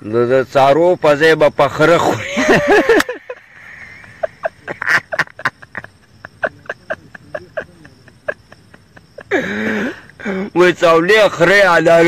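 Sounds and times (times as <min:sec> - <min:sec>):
man wheezing laughter: 0:02.1 - 0:10.5.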